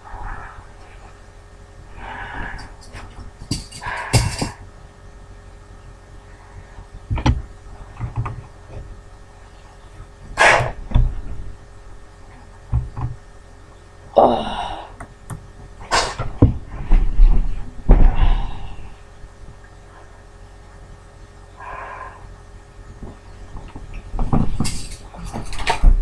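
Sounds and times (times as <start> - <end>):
heavy thumps: 2.2 - 4.7, 15.4 - 18.7
breathy gasps: 14.2 - 15.0, 18.1 - 19.0
person crying out: 14.2 - 15.0.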